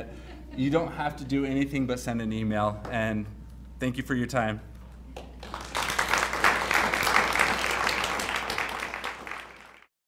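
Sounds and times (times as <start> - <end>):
audience applauding: 5.2 - 9.9.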